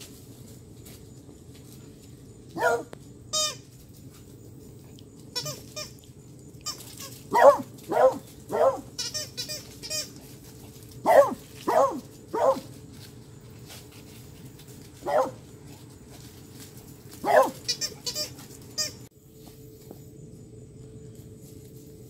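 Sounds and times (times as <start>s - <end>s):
dog barking: 2.5s - 3.0s, 7.3s - 8.9s, 11.0s - 12.7s, 15.0s - 15.4s, 17.2s - 17.6s
dog squeaking: 9.0s - 10.1s, 17.4s - 19.0s.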